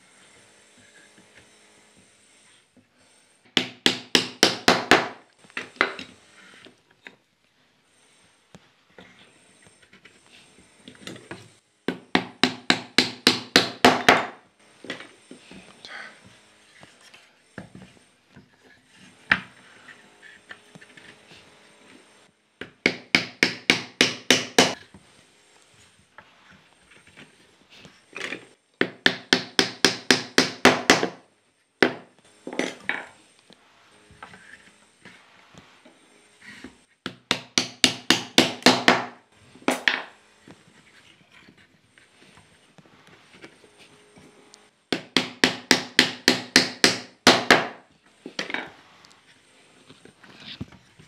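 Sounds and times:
wooden mallet knocking wood: 0:37.1 - 0:40.1.

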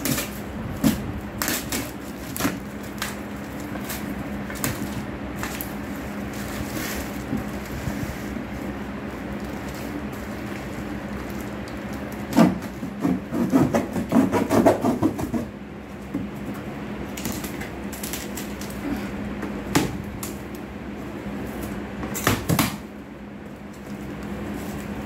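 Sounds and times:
box cutter slicing cardboard: 0:12.3 - 0:15.5.

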